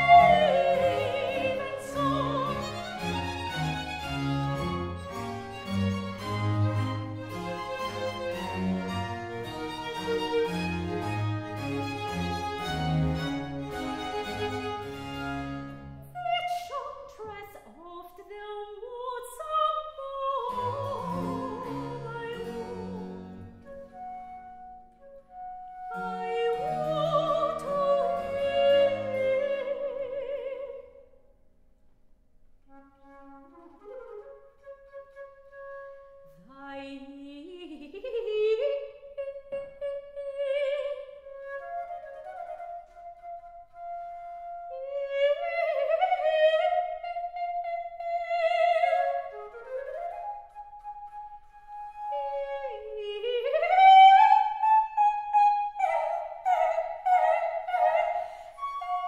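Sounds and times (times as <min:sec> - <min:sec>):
soprano singing with vibrato: 0:00.0 - 0:03.2, 0:16.1 - 0:23.1, 0:25.9 - 0:31.0, 0:36.4 - 0:41.4, 0:44.7 - 0:49.8, 0:52.1 - 0:59.0
wooden transverse flute: 0:00.0 - 0:17.2, 0:20.4 - 0:30.9, 0:32.7 - 0:38.3, 0:39.3 - 0:59.0
string ensemble: 0:00.0 - 0:17.5, 0:20.4 - 0:24.4, 0:25.9 - 0:30.7.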